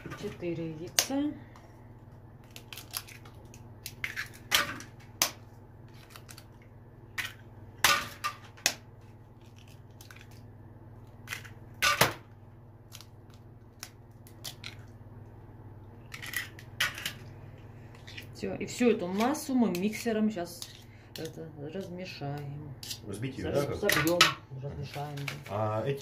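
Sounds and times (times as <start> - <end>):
eggshells cracking: 2.1 - 12.1, 12.8 - 15.3, 16.0 - 18.4.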